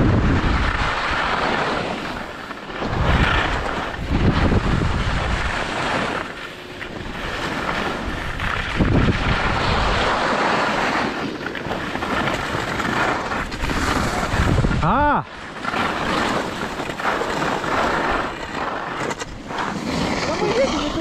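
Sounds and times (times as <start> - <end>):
wind rumbling on microphone: 0.0 - 21.0
snow sliding hiss: 7.0 - 11.3.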